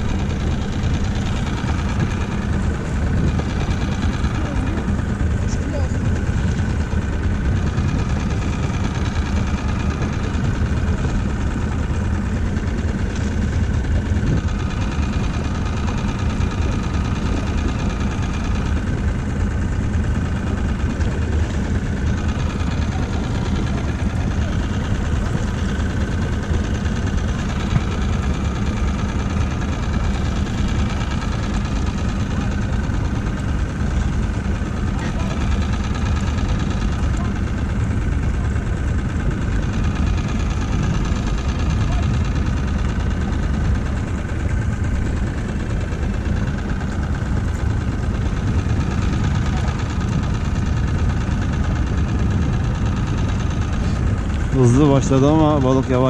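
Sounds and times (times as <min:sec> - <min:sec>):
small outboard motor running: 0:00.0 - 0:56.0.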